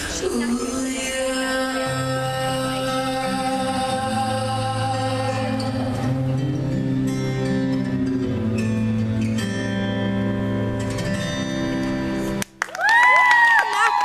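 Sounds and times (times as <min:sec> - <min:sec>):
high-pitched cheering voices: 0:12.8 - 0:14.0.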